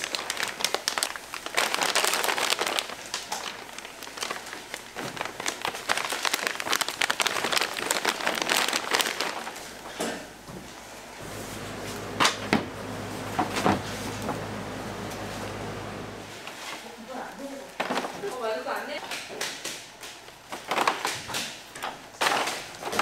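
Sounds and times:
plastic packaging crinkling: 0.0s - 10.0s, 20.1s - 23.0s.

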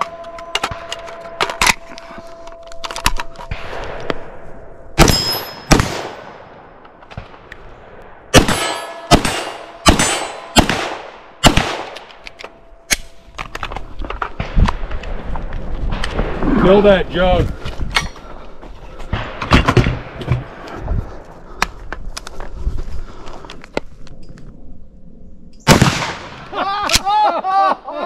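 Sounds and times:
gunshots: 5.0s - 12.2s, 25.7s - 26.5s
steel plates clanging: 8.5s - 10.6s.

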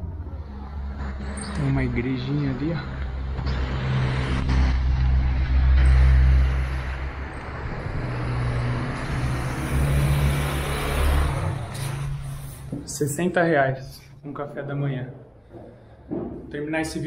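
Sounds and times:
road traffic engine hum: 0.0s - 13.2s.

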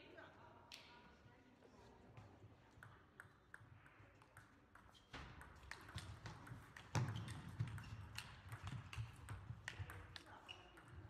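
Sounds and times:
table tennis balls clicking: 2.8s - 11.0s.

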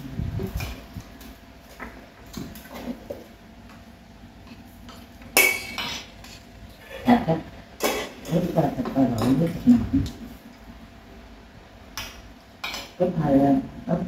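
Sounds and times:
utensils clinking on ceramic bowls: 5.4s - 6.5s.

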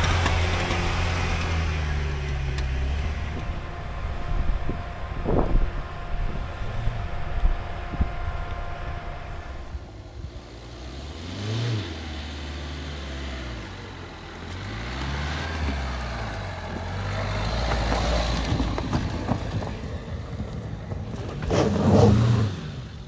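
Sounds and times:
car engine revving: 0.0s - 23.0s
tyres crunching over stones: 14.5s - 21.6s.

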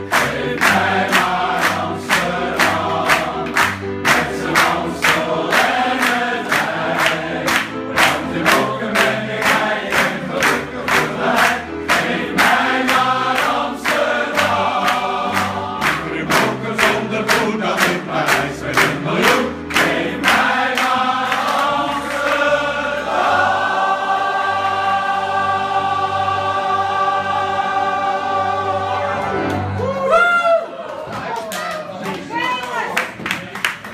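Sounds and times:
men's choir singing: 0.0s - 29.8s
piano: 0.0s - 33.9s
clapping in time: 31.3s - 33.9s.

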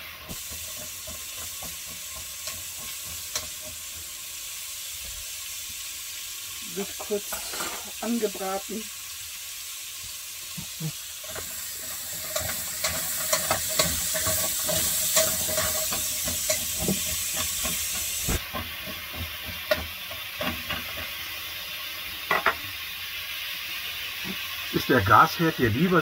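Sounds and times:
vegetables sizzling in a pot: 0.0s - 26.0s
spatula scraping and clicking on pot: 0.3s - 3.8s, 11.2s - 21.2s.

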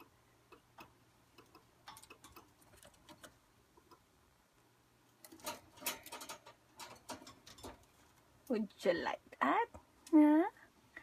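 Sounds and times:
parakeet clicking and tapping in cage: 0.0s - 4.1s, 5.2s - 8.3s.

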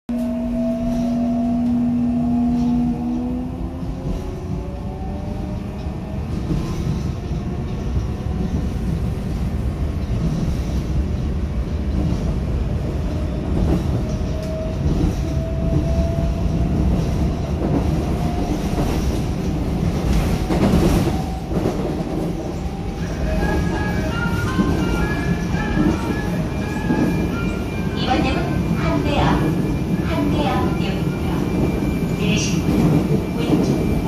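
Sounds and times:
train wheels rumbling on track: 0.1s - 34.0s
rail clatter: 11.8s - 34.0s.

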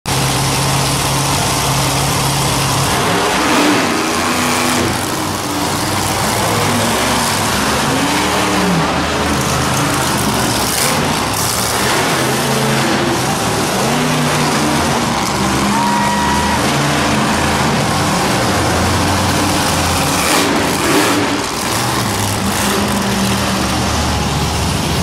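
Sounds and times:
monster truck engines revving: 0.1s - 25.0s.

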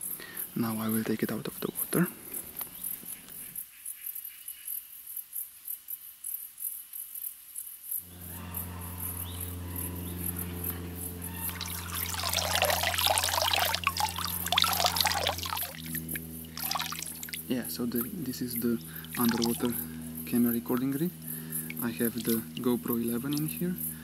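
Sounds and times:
insects chirring: 7.9s - 24.0s
low hum: 8.0s - 24.0s
water splashing and pouring: 11.4s - 17.5s, 18.9s - 19.8s, 21.6s - 23.6s.

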